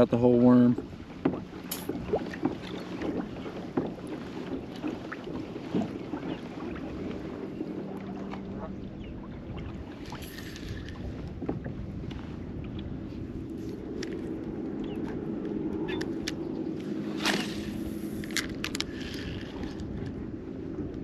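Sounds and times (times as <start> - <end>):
steady low hum: 6.8 - 21.0
fishing gear knocking and clicking: 18.2 - 20.1.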